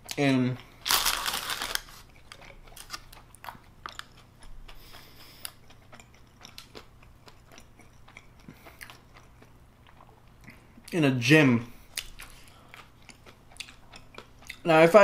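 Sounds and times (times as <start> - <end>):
crunchy chewing: 0.0 - 11.0, 11.8 - 14.7
paper bag rustling: 0.9 - 2.0.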